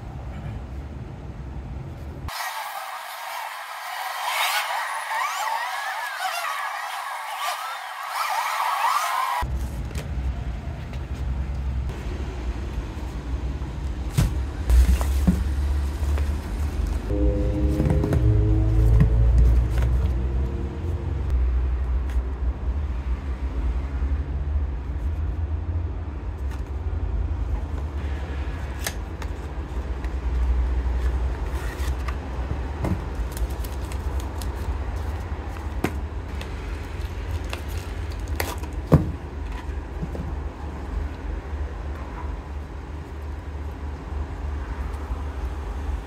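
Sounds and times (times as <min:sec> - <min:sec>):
steady low rumble: 0:09.5 - 0:22.8
cardboard boxes rustling and clicking: 0:14.2 - 0:16.9.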